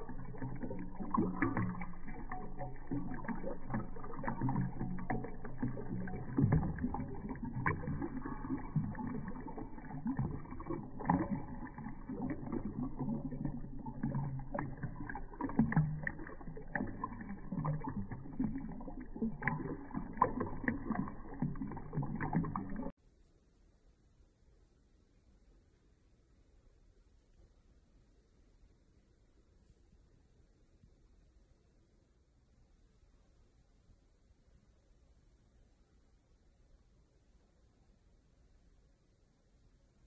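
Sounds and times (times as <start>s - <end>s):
cat lapping water: 0.0s - 22.9s
fountain water trickling: 0.0s - 22.9s.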